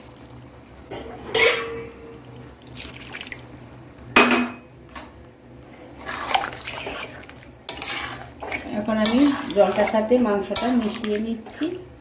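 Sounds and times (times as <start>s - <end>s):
faint watery sounds: 0.0s - 4.1s, 5.8s - 12.0s
utensils clinking on metal pot: 1.0s - 1.9s, 7.7s - 11.7s.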